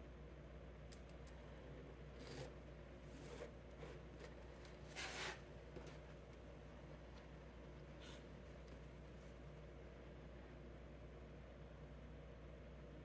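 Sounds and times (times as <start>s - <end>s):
ruler rubbing on cutting mat: 2.2s - 5.5s.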